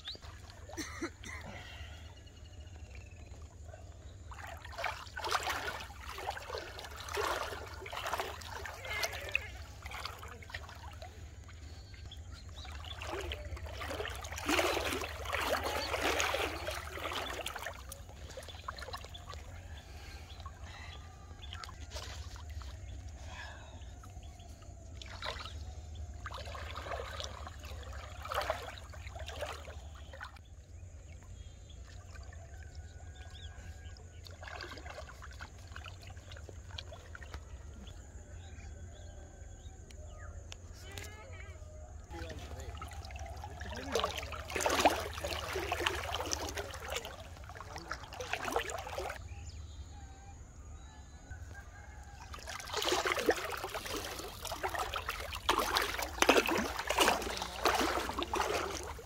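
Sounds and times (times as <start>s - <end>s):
water splashing and sloshing: 0.0s - 59.0s.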